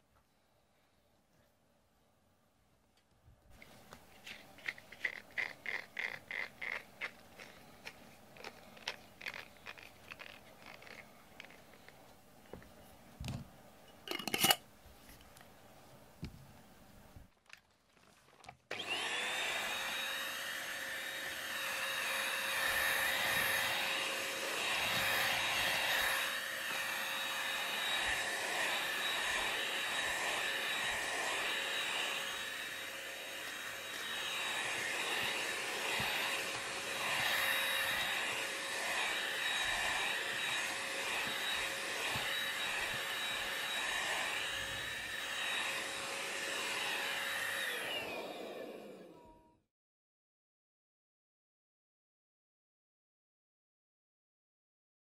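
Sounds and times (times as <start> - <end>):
vacuum cleaner running on rug: 18.7 - 49.3.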